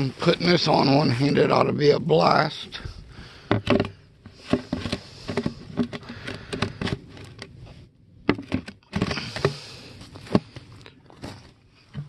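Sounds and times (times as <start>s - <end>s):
plastic knocks and scrapes: 3.4s - 7.5s, 8.2s - 9.6s.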